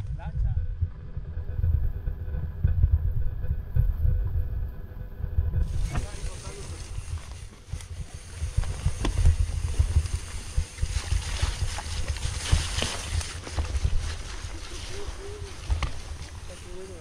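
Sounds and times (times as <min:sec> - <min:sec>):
wind buffeting microphone: 0:00.0 - 0:17.0
bike knocks and rattles: 0:05.6 - 0:17.0.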